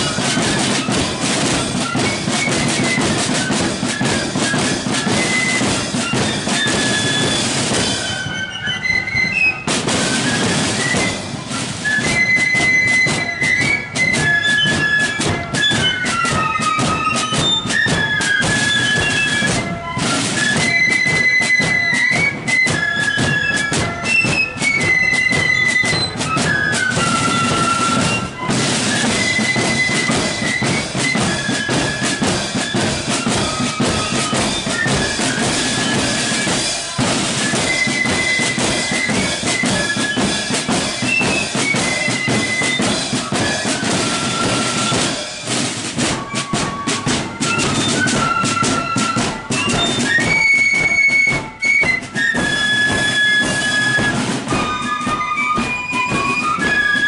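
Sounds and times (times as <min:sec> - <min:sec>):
flutes playing melody: 0:00.0 - 0:57.0
snare drums beat: 0:00.0 - 0:57.0.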